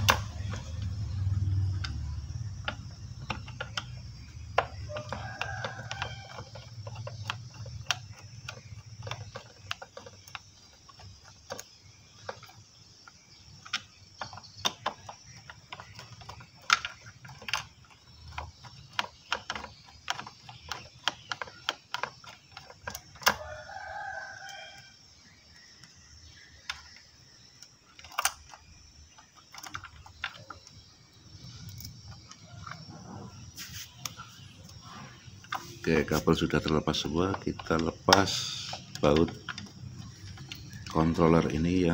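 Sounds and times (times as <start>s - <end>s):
sharp plastic clicks: 0.0s - 23.8s, 24.4s - 41.9s
wires rattling: 0.0s - 41.9s
rooster crowing: 4.8s - 6.7s, 23.3s - 25.0s.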